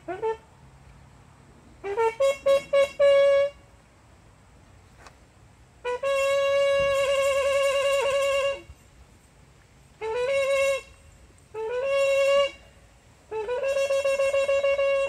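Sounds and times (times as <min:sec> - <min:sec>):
solo brass instrument: 0:00.0 - 0:00.4, 0:01.8 - 0:03.6, 0:05.8 - 0:08.8, 0:10.0 - 0:15.0.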